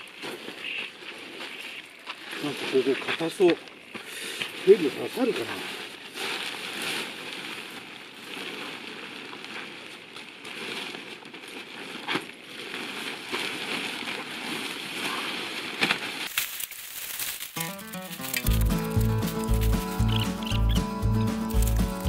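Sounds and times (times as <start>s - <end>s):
tent fabric rustling and flapping: 0.0s - 3.5s, 4.5s - 22.0s
music: 17.6s - 22.0s.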